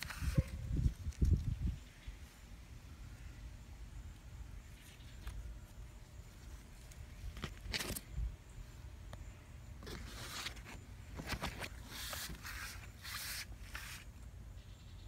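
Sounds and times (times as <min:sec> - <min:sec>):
leaves and stems rustling: 0:04.2 - 0:08.2.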